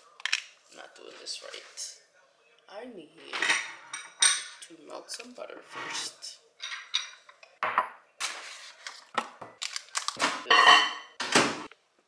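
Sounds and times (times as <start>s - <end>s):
dishes and cookware clattering: 3.2s - 4.7s, 5.7s - 8.5s, 10.2s - 11.7s.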